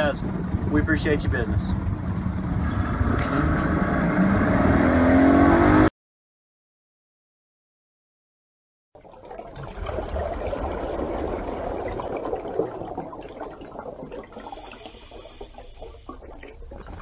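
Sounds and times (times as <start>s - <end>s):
low rumble: 0.0s - 5.1s.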